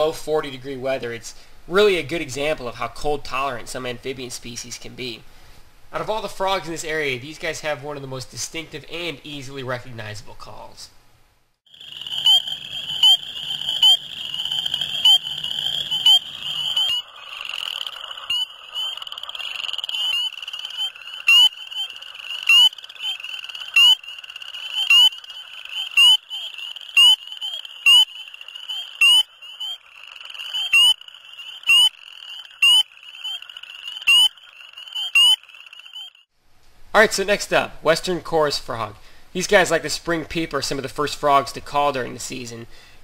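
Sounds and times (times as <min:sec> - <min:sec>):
frog chorus: 0:11.7 - 0:36.2
close frog peeping: 0:11.7 - 0:36.3.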